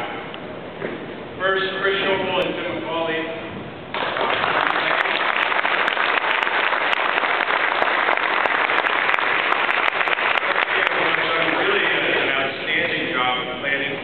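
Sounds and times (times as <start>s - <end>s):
crowd applauding: 3.9s - 12.6s.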